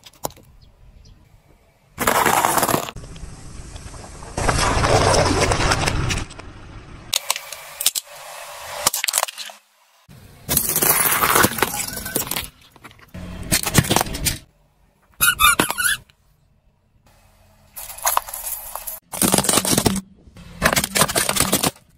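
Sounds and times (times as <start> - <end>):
plastic and metal crunching: 2.0 - 3.0, 10.5 - 14.5, 17.8 - 21.9
plastic cups crushed crackling: 2.0 - 3.0, 10.5 - 14.0, 17.8 - 21.9
plastic cups squashing and splashing: 17.8 - 21.9.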